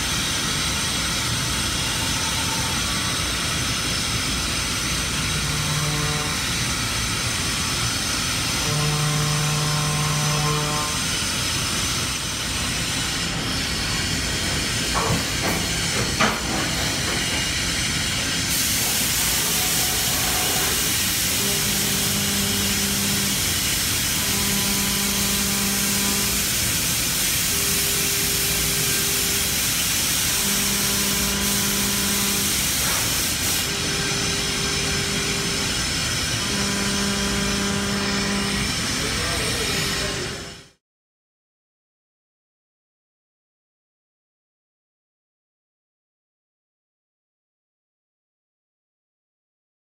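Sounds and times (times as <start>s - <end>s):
coolant spray hissing: 18.5s - 33.7s.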